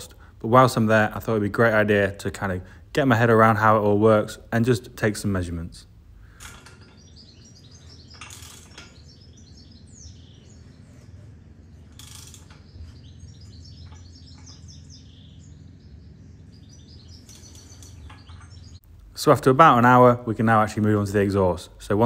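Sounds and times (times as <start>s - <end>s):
small birds chirping: 4.9s - 22.0s.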